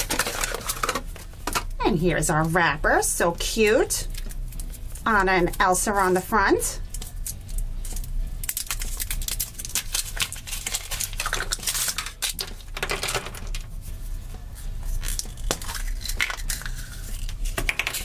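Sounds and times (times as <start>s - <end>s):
foil wrapper crinkling and tearing: 0.0s - 1.2s, 6.9s - 13.7s, 14.9s - 18.0s
chocolate shell cracking: 6.9s - 13.6s, 15.0s - 18.0s.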